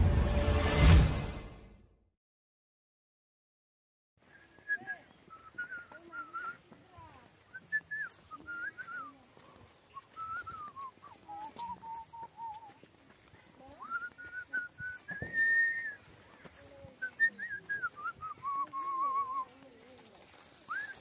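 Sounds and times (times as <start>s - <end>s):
man whistling a tune: 4.3s - 6.6s, 7.5s - 9.1s, 10.0s - 12.7s, 13.8s - 16.0s, 17.0s - 19.5s, 20.7s - 21.0s.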